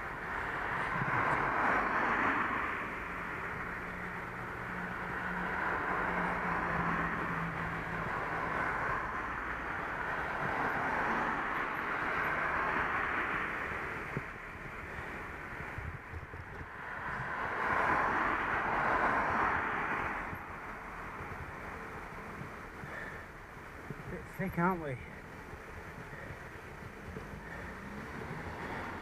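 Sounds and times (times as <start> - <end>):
low engine hum: 0.0 - 29.0
road traffic: 0.0 - 29.0
wind noise on microphone: 14.0 - 20.6.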